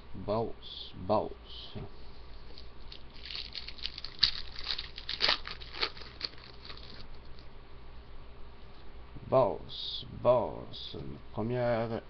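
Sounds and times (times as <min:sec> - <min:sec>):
cards being shuffled: 0:02.5 - 0:07.5.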